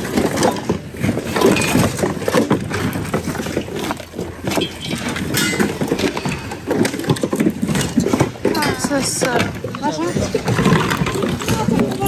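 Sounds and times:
rummaging through plastic goods: 0.0s - 12.0s.

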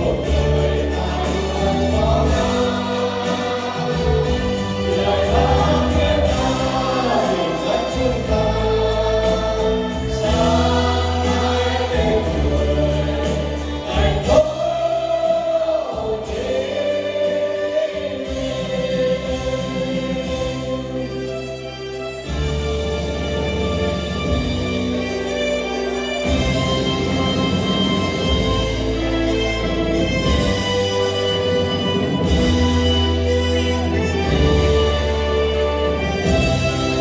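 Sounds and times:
mixed choir singing: 0.0s - 21.1s, 30.2s - 37.0s
instrumental backing with bass: 0.0s - 37.0s.

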